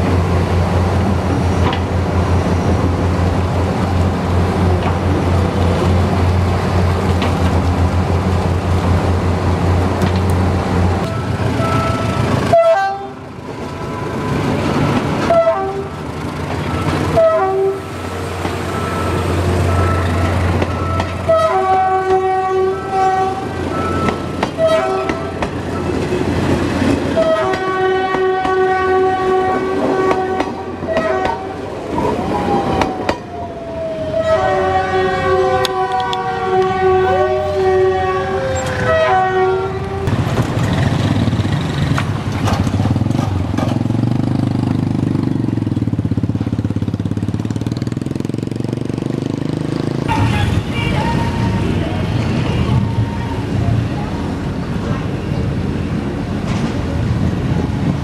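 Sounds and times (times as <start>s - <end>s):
train horn blasts: 11.0s - 13.2s, 15.2s - 16.0s, 17.0s - 17.9s, 19.7s - 25.5s, 27.1s - 31.7s, 34.1s - 40.1s, 50.1s - 53.4s.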